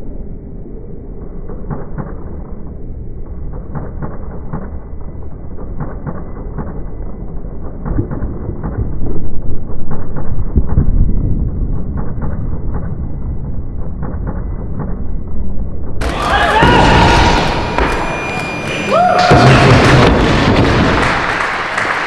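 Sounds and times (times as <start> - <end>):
deep rumble with dull knocks: 1.5 - 16.0.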